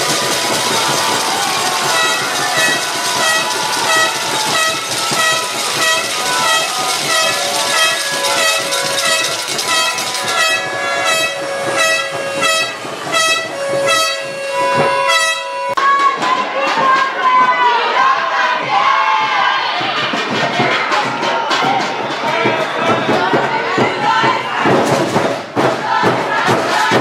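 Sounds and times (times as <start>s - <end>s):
horns tooting: 0.0s - 16.2s
long steady horn tone: 2.0s - 15.8s.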